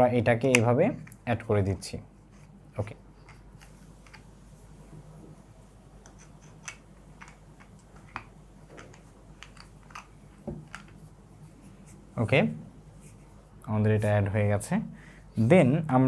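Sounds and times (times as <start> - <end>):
plastic parts clicking: 6.5 - 11.0.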